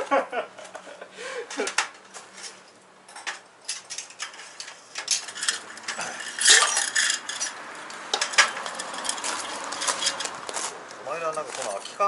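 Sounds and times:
metal gear clinking and knocking: 3.1 - 10.3.

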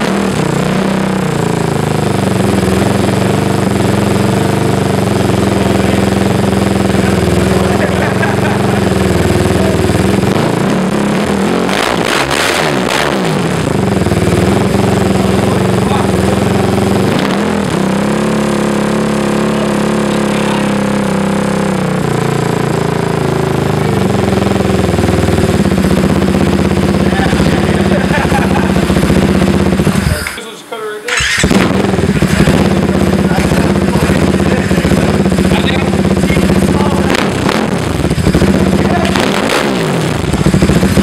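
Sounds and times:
single-cylinder engine revving and idling: 0.0 - 30.3, 31.1 - 41.0.

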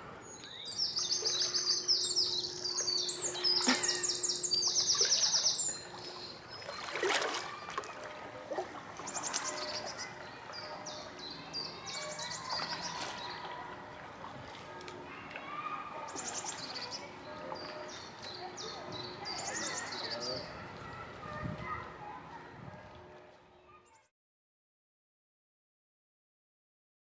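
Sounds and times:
songbird trilling: 0.2 - 6.9
paddle splashing in water: 3.3 - 10.8, 12.0 - 16.9.

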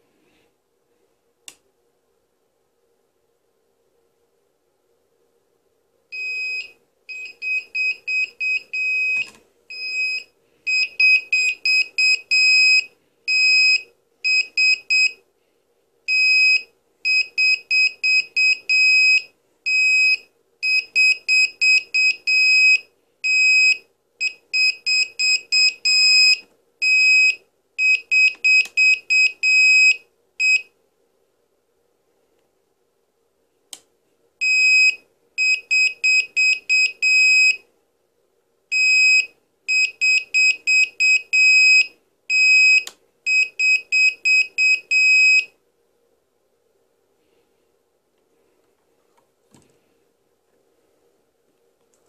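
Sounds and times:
high alarm buzzer beeps: 6.2 - 15.2, 16.1 - 30.7, 34.4 - 37.6, 38.7 - 45.5.

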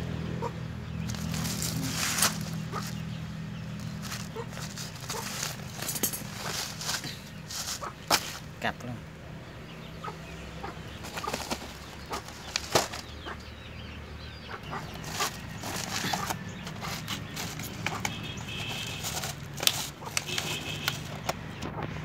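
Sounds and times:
chickens clucking: 0.2 - 9.0, 9.6 - 22.0
wire traps clicking: 1.0 - 3.1, 3.7 - 8.5, 11.0 - 13.4, 14.7 - 21.4
plastic sacks rustling: 1.0 - 8.6, 11.0 - 13.2, 14.9 - 21.2.

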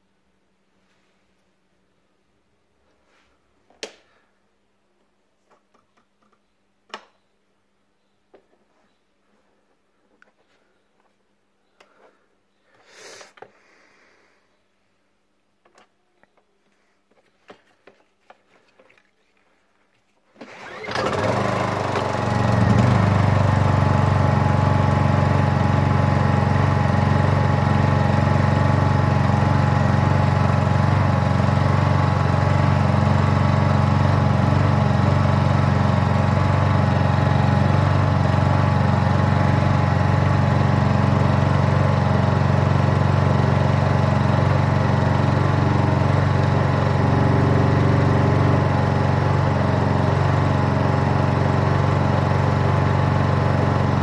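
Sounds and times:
generator engine running: 20.5 - 54.0.

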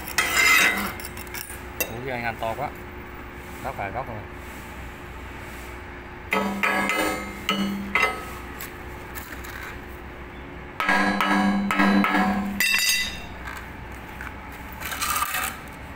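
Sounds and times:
metal being struck: 6.3 - 8.4, 10.8 - 13.3.

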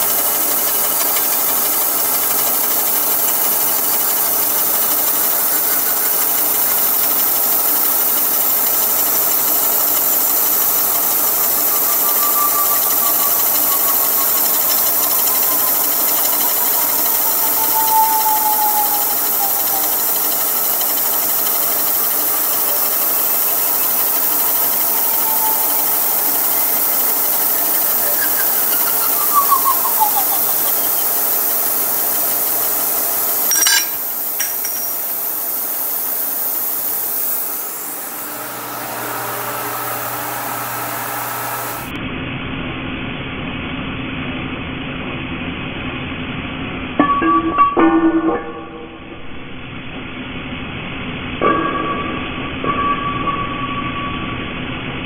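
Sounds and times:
saw cutting aluminum whine: 0.0 - 42.0
sharp click: 33.4 - 35.1.

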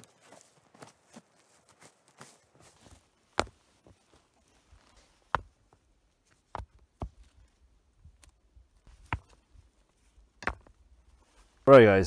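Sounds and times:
rocks knocking together: 8.2 - 9.5, 10.4 - 10.9.

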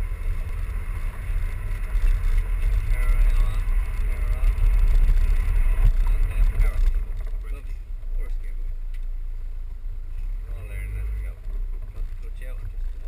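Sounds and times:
vehicle engine rumble: 0.0 - 13.0.

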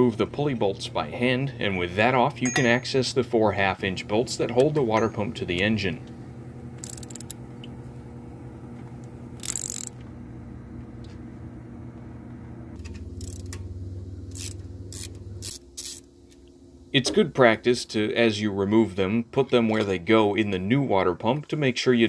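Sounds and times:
steady low hum: 0.0 - 22.0
socket ratchet clicking: 6.8 - 7.4, 9.4 - 10.0, 13.2 - 13.6, 14.3 - 16.1.

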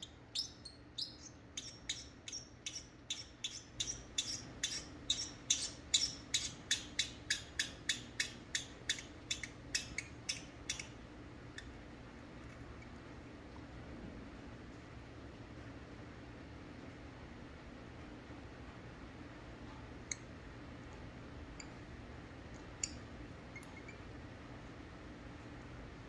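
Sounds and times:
parrot chirping: 0.0 - 11.8, 22.8 - 24.0.

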